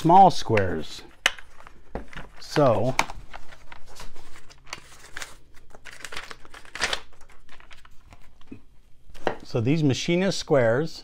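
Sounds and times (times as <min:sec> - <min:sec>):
packaging crinkling and rustling: 0:01.1 - 0:09.3.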